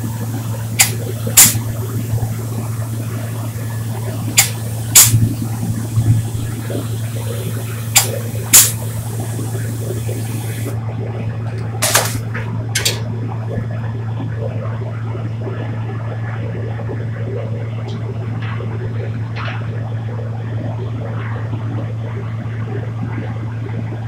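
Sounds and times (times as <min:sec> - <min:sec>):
spray gun spurts: 0:00.0 - 0:05.5, 0:06.1 - 0:10.8, 0:11.8 - 0:13.0
spray gun hissing: 0:00.0 - 0:10.8, 0:11.8 - 0:12.3
extraction fan low hum: 0:00.0 - 0:24.0.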